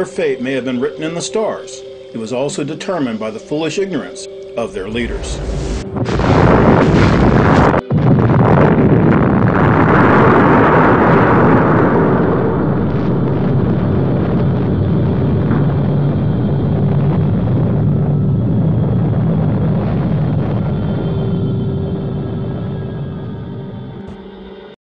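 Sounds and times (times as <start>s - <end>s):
low steady drone: 0.0s - 24.8s
explosion rumble: 4.6s - 24.3s.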